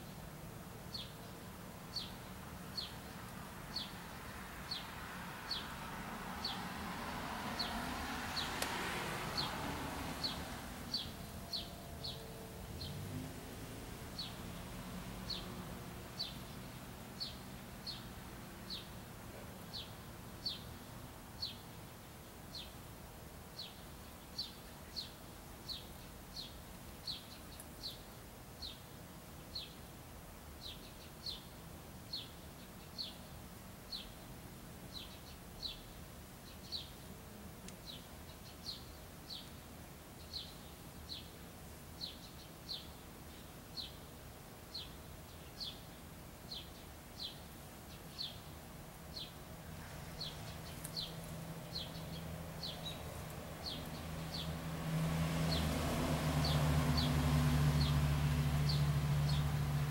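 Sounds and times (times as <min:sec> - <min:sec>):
bird chirping: 0:00.9 - 0:05.7, 0:09.3 - 0:15.6, 0:16.2 - 0:20.8, 0:44.7 - 0:55.8, 0:58.6 - 0:59.5.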